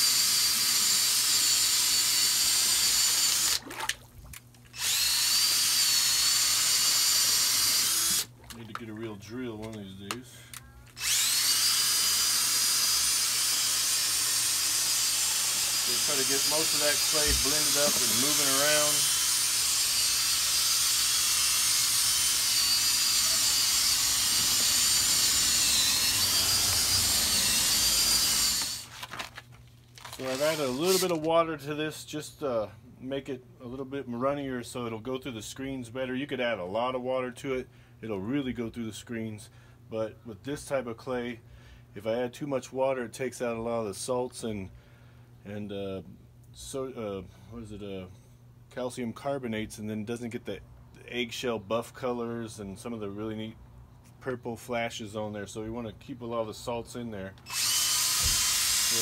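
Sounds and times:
drill mixing clay slurry: 0.0 - 3.8, 4.8 - 8.4, 11.0 - 29.0, 30.0 - 31.3, 57.4 - 59.0.

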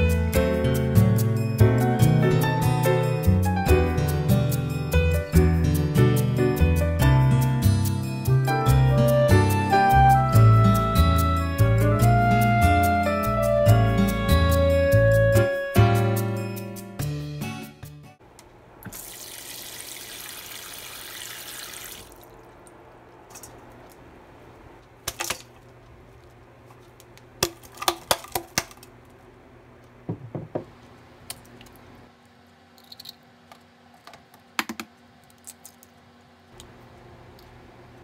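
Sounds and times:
tap water running: 18.8 - 22.4.

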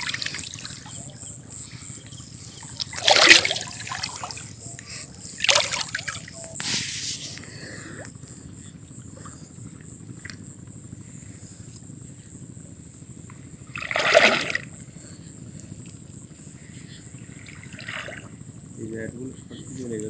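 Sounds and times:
water dripping and sloshing: 0.0 - 1.2, 2.5 - 6.6, 13.7 - 14.7, 17.3 - 18.4
loud splash: 2.9 - 4.4, 13.8 - 14.7.

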